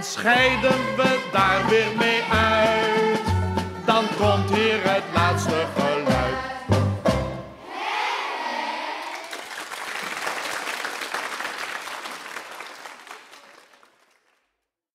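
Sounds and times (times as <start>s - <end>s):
children shouting: 7.6s - 9.3s
children clapping and cheering: 8.0s - 14.6s.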